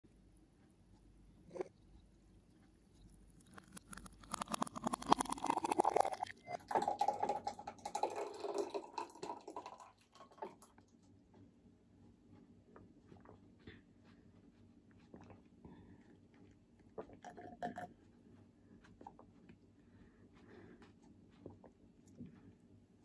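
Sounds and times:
woman gulping and swallowing: 3.5 - 10.8, 16.4 - 18.0.

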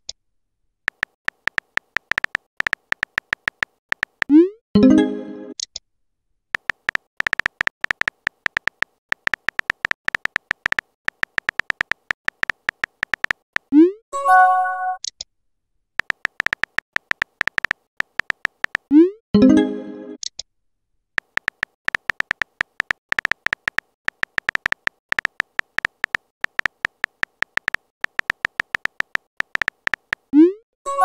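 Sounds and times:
keyboard tapping clicks: 0.9 - 4.4, 6.6 - 13.8, 16.0 - 18.9, 21.2 - 30.4
chiming message tone: 4.8 - 5.6, 14.2 - 15.0, 19.4 - 20.2.

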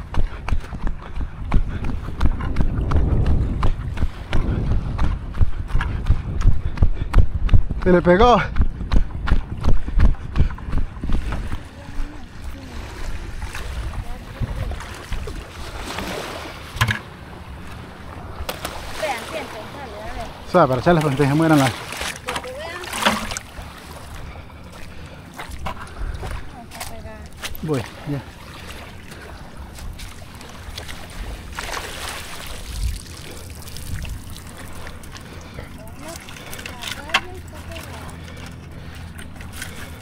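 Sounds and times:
wind buffeting the microphone: 0.0 - 16.8, 24.2 - 27.7, 32.4 - 37.5
plastic bucket knock: 16.8 - 17.0.

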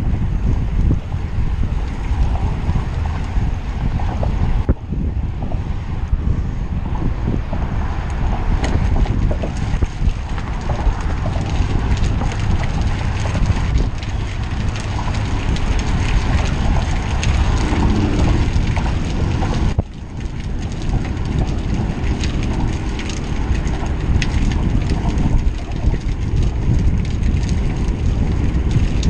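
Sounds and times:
wind rumbling on microphone: 0.0 - 29.0
light ticks and crackles: 8.0 - 29.0.

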